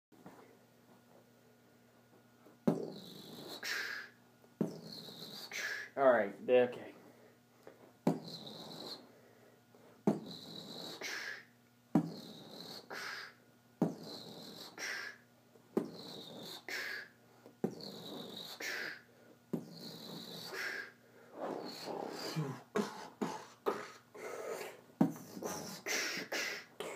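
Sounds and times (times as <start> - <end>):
beatbox mouth noises: 2.6 - 6.0, 8.0 - 9.1, 10.0 - 26.9.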